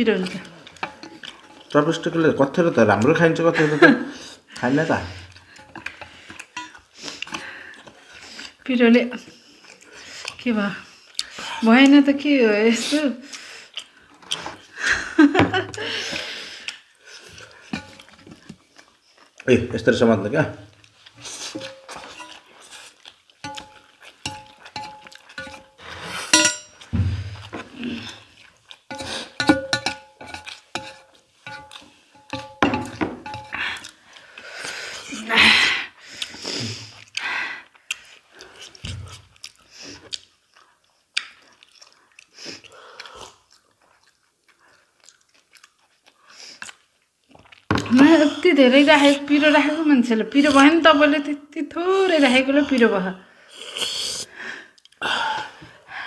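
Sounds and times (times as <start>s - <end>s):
noodles chewed and slurped: 0.1s - 3.7s, 9.3s - 14.8s, 15.8s - 19.5s, 20.7s - 32.6s, 33.3s - 35.3s, 36.0s - 48.2s
chopsticks tapping metal plates: 0.2s - 1.7s, 5.5s - 7.5s, 17.7s - 18.4s, 21.4s - 22.4s, 23.4s - 26.9s, 28.9s - 33.6s
mouth clicks and smacks: 37.0s - 44.2s.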